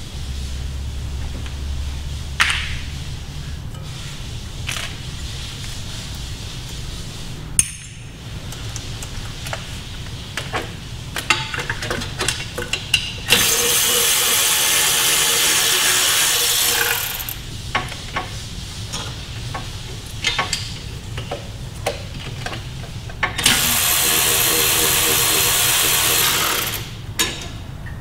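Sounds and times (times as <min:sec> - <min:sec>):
power tool running: 0:13.3 - 0:17.4, 0:23.4 - 0:27.0.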